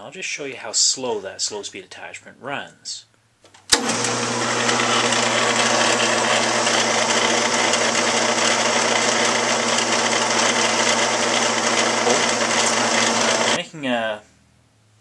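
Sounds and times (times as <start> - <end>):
drill press motor humming: 3.8 - 13.6.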